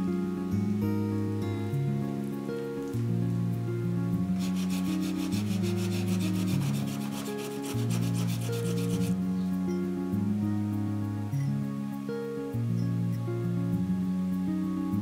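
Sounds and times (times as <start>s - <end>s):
soft background music: 0.0s - 15.0s
food rasping on metal grater: 4.4s - 9.2s.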